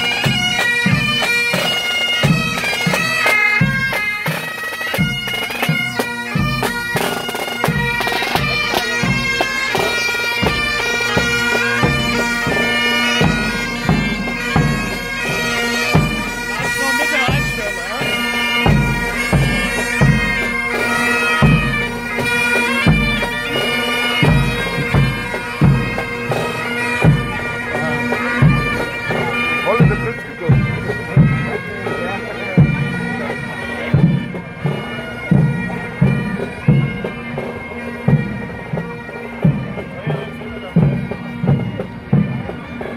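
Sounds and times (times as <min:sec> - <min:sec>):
bagpipes playing: 0:00.0 - 0:42.9
marching drum beat: 0:00.0 - 0:42.9.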